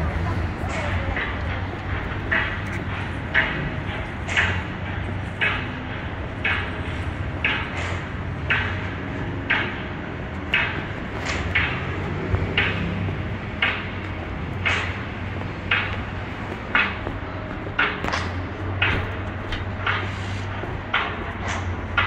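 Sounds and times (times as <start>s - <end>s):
street traffic hum: 0.0s - 22.0s
footsteps on concrete: 10.4s - 21.8s.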